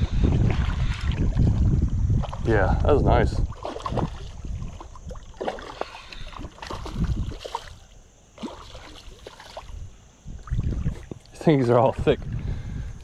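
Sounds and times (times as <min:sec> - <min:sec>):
fish splashing in water: 0:03.4 - 0:09.8.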